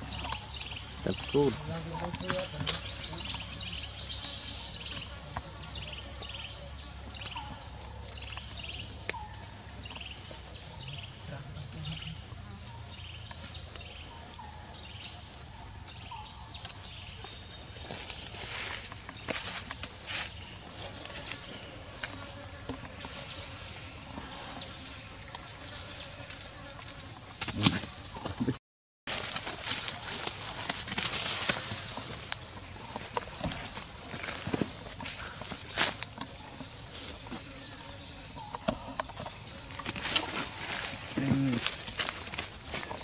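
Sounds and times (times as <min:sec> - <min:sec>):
insects buzzing: 0:00.0 - 0:43.0
insects droning: 0:29.4 - 0:43.0.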